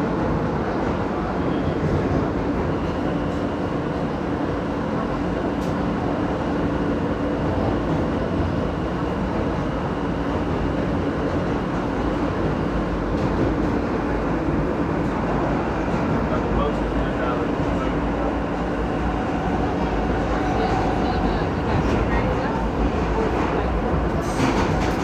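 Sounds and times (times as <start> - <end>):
subway wheels rumbling on rail: 0.0 - 25.0.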